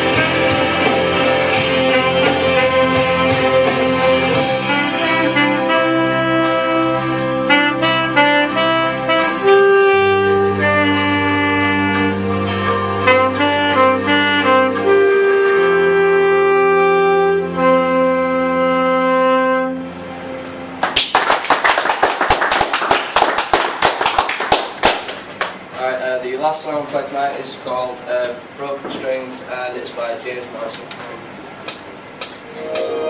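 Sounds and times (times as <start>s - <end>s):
saxophone slow melody: 0.0s - 20.8s, 32.4s - 33.0s
low held accompaniment chords: 0.0s - 20.9s, 32.4s - 33.0s
audience clapping: 20.8s - 25.6s.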